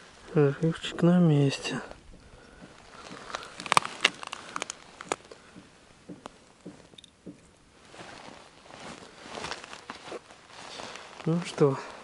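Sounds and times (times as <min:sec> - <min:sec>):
soft hiss: 0:00.0 - 0:12.0
sharp clicks and knocks: 0:02.1 - 0:07.5.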